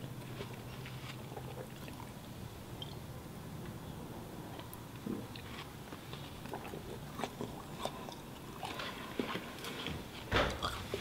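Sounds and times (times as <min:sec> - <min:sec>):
wet chewing and biting: 0:00.0 - 0:02.2, 0:04.5 - 0:11.0.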